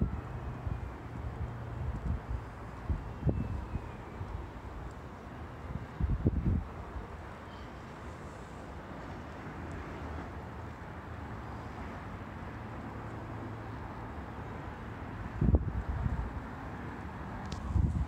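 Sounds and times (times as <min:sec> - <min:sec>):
wind buffeting microphone: 0:00.0 - 0:04.9, 0:05.6 - 0:07.2, 0:15.2 - 0:16.4, 0:17.4 - 0:18.0.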